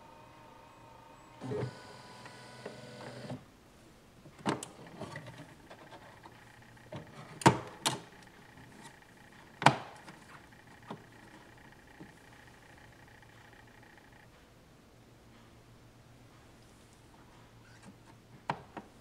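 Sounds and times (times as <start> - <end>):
printer motor running: 0.0 - 3.4, 5.4 - 14.2.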